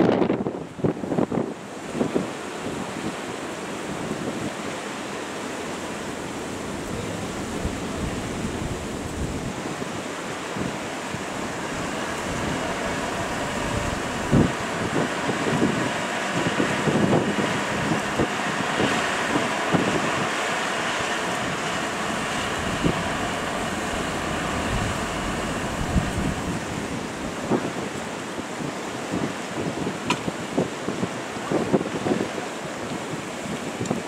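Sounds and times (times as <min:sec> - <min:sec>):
wind on microphone: 0:00.0 - 0:34.0
crane engine running: 0:03.3 - 0:28.5.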